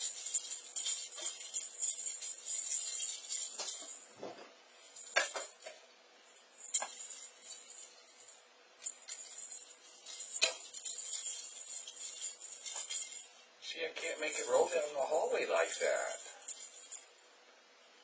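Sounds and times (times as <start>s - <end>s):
sharp clinks: 0.0s - 4.2s, 6.6s - 13.4s, 15.6s - 17.1s
bell jingling in rolling ball: 0.0s - 17.2s.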